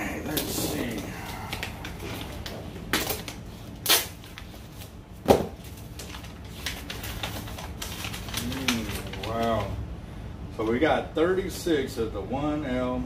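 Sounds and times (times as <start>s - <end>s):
packaging rustle: 0.3s - 9.8s.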